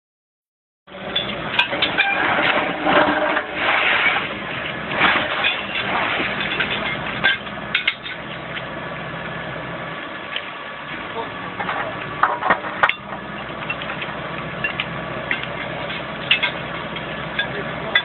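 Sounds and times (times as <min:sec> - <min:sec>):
metallic clanks and knocks: 0:01.0 - 0:04.2, 0:04.9 - 0:08.7, 0:11.6 - 0:18.0.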